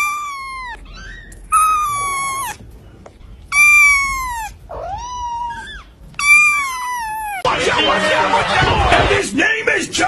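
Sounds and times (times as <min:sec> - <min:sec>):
kitten meowing: 0:00.0 - 0:02.6, 0:03.5 - 0:07.5.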